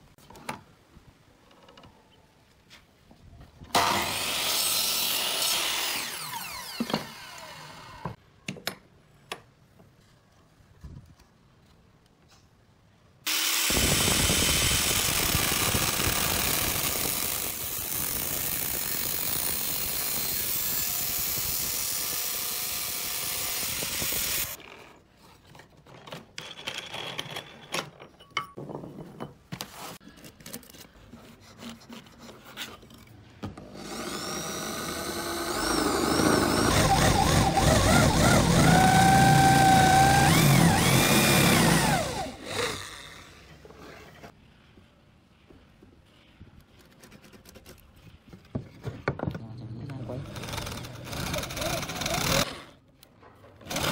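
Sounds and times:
angle grinder cutting steel pipe: 0:03.8 - 0:08.2, 0:13.3 - 0:24.6, 0:33.8 - 0:43.4
drill boring into wood: 0:03.8 - 0:08.2, 0:13.3 - 0:24.6, 0:33.8 - 0:43.4, 0:50.2 - 0:52.8, 0:53.7 - 0:53.9.

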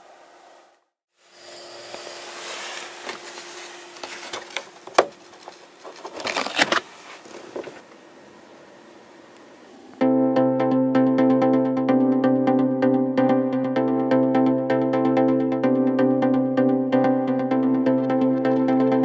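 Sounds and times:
faint steady hum: 0:00.0 - 0:10.0
handling and rustling: 0:02.1 - 0:07.9.

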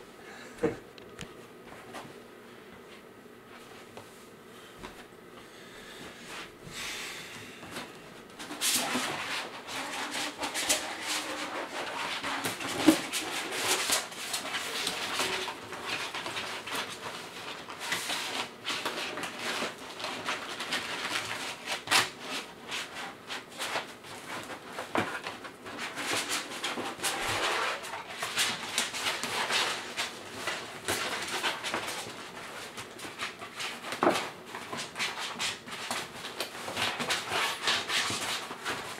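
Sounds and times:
small crackles and knocks: 0:23.5 - 0:38.9.

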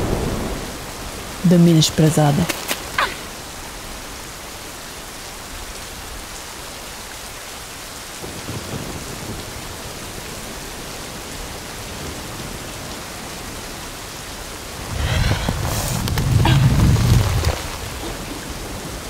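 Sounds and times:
low rumble of thunder: 0:00.0 - 0:01.5, 0:08.2 - 0:19.0
steady rain falling: 0:00.0 - 0:19.0.

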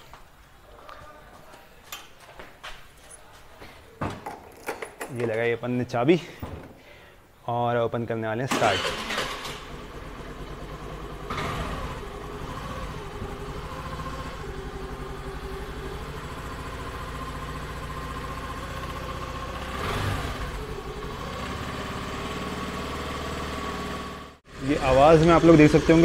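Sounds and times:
scooter engine revving: 0:08.5 - 0:26.0
scooter engine idling: 0:08.8 - 0:26.0.

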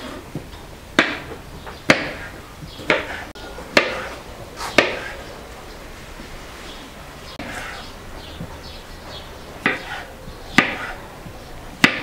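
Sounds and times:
knife chopping on cutting board: 0:01.9 - 0:04.1, 0:09.6 - 0:11.0, 0:11.8 - 0:12.0.

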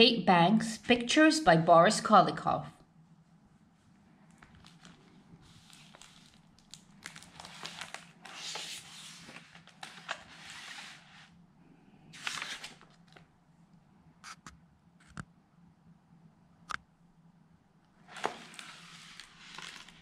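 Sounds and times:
book pages rustling: 0:03.6 - 0:11.4, 0:12.2 - 0:13.3, 0:18.0 - 0:20.0.

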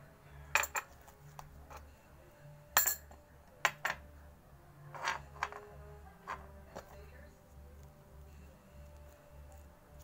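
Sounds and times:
glass and metal clinks on table: 0:00.6 - 0:00.9, 0:02.8 - 0:04.0.

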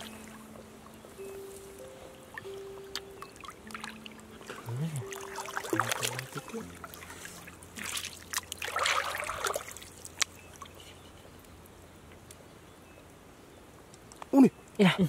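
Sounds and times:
water trickling: 0:00.0 - 0:11.7
water splashing: 0:02.4 - 0:10.8.

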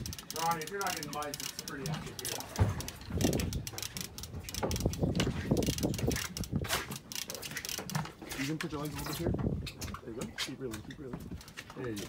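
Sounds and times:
fishing reel gears clicking: 0:00.0 - 0:08.7.

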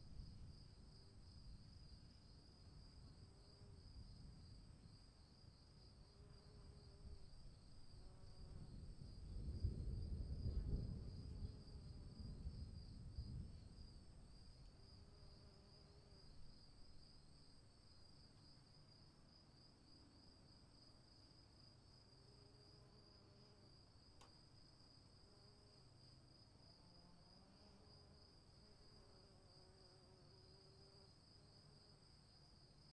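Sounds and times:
faint click: 0:24.1 - 0:24.4.

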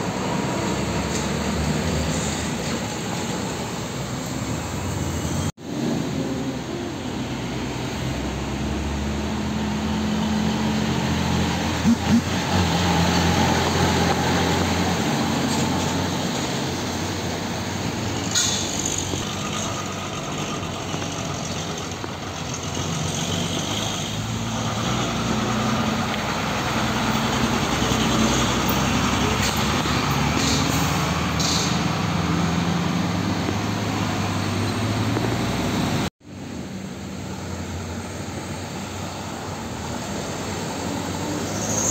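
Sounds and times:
diesel truck engines: 0:00.0 - 0:41.9
air-brake hisses: 0:18.2 - 0:19.2, 0:30.3 - 0:31.9.

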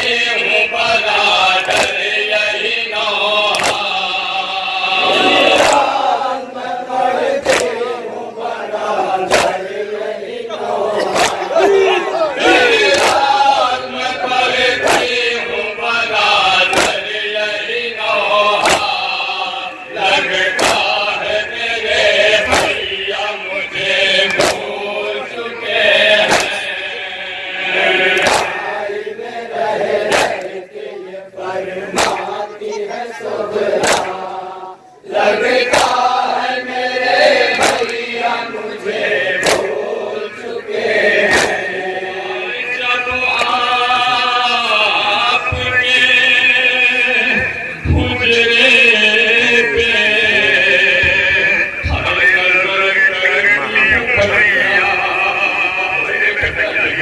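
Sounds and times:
man reciting into microphone: 0:00.0 - 0:06.9, 0:07.5 - 0:29.2, 0:33.9 - 0:57.0
men chanting: 0:00.0 - 0:57.0
chest-beating slaps: 0:01.6 - 0:02.2, 0:03.4 - 0:04.0, 0:05.0 - 0:06.1, 0:07.4 - 0:07.9, 0:09.3 - 0:09.7, 0:11.0 - 0:11.5, 0:12.8 - 0:13.5, 0:14.8 - 0:15.2, 0:16.7 - 0:17.2, 0:18.6 - 0:19.2, 0:20.4 - 0:21.1, 0:22.2 - 0:23.0, 0:24.2 - 0:24.8, 0:26.2 - 0:26.7, 0:28.0 - 0:28.7, 0:30.0 - 0:30.6, 0:31.9 - 0:32.4, 0:33.7 - 0:34.4, 0:35.6 - 0:36.1, 0:37.4 - 0:38.1, 0:39.3 - 0:39.8, 0:41.2 - 0:41.7, 0:43.2 - 0:43.6.

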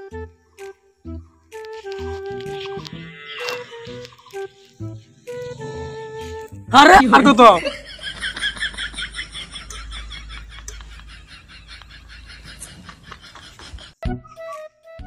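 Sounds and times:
flute tune: 0:00.0 - 0:06.6, 0:14.0 - 0:15.0.

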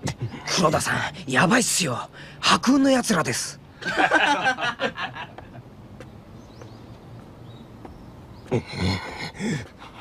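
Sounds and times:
voices: 0:00.0 - 0:05.5, 0:08.4 - 0:10.0.

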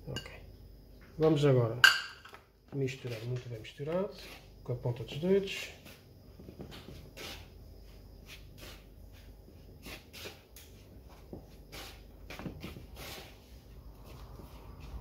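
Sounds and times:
fingertips rubbing flour in bowl: 0:04.1 - 0:04.5, 0:08.2 - 0:10.4.

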